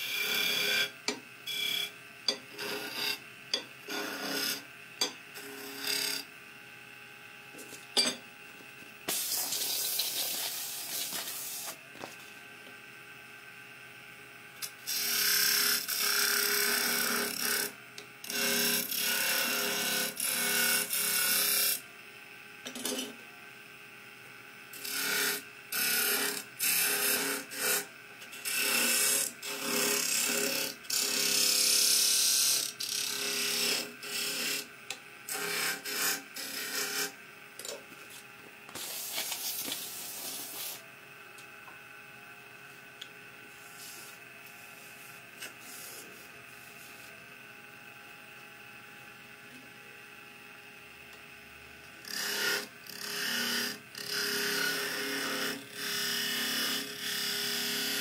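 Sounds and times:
lathe tool scraping wood: 1.5 - 3.2, 3.8 - 4.7, 5.4 - 6.2, 24.8 - 27.8, 35.3 - 37.1, 52.0 - 58.0.

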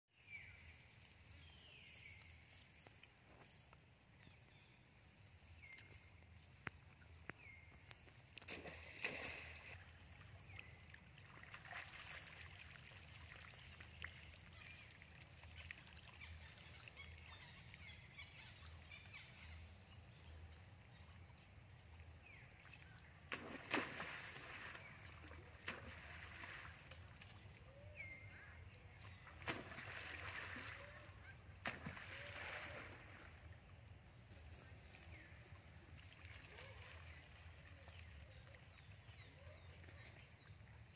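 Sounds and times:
monkeys splashing in water: 8.2 - 19.2, 22.2 - 33.5, 35.0 - 39.9.

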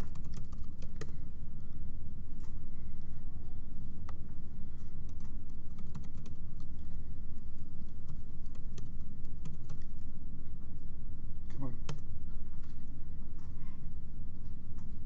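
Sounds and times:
low room rumble: 0.0 - 15.0.

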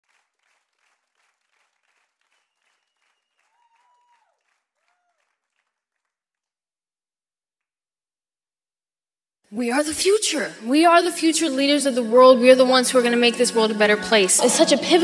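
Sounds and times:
audience applause: 0.0 - 6.5
cheering calls: 2.3 - 5.4.

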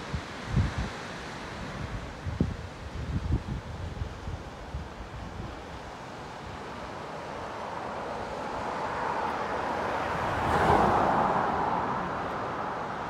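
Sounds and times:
car passing: 6.4 - 13.0.

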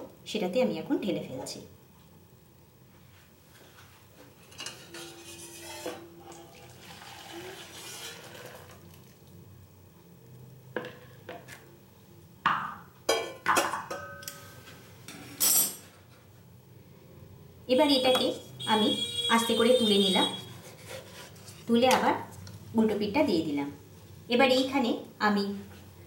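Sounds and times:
pots knocking and scraping: 4.3 - 8.7, 12.5 - 14.2.

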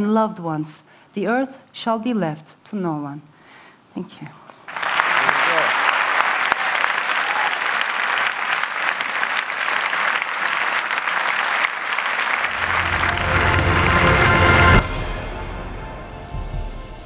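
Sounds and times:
audience applauding: 4.7 - 14.9
music: 12.5 - 17.0.

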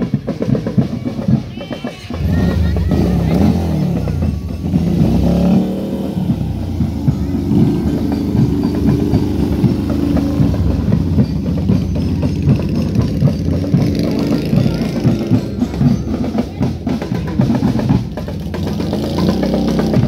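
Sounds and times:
motorcycle engine idling unevenly: 2.1 - 20.0.

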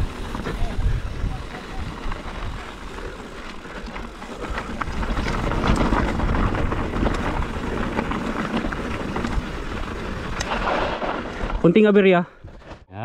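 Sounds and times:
wind rushing over microphone: 0.0 - 2.9, 4.1 - 11.7
bike tyres rolling on gravel: 0.0 - 12.7.

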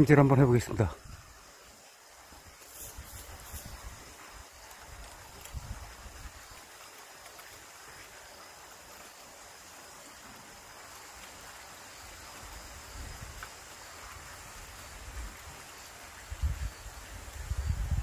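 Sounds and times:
faint outdoor hiss: 0.0 - 18.0
wind buffeting microphone: 4.9 - 6.4, 16.2 - 18.0.

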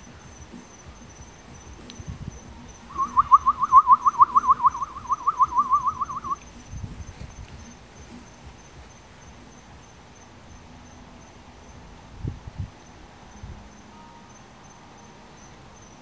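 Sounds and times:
fast series of short notes: 0.0 - 10.8
crickets chirping: 0.0 - 16.0.

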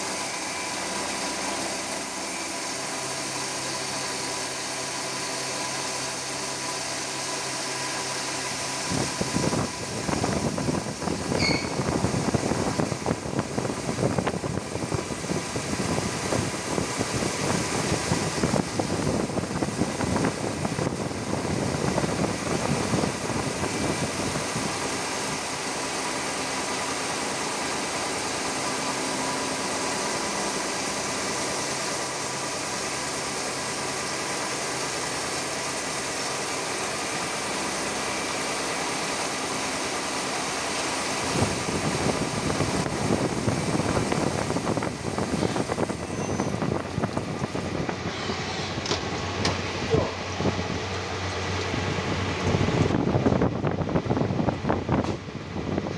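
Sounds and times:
coolant spray: 0.0 - 53.6
milling machine cutting metal: 45.1 - 52.5.

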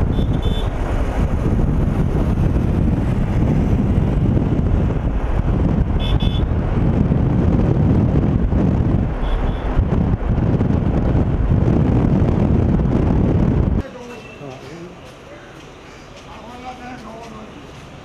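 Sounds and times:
wind buffeting on microphone: 0.0 - 13.8
car road noise: 0.0 - 18.0.

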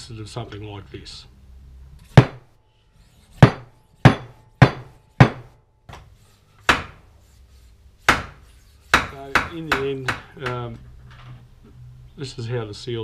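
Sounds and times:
hammer blows: 3.4 - 5.6.

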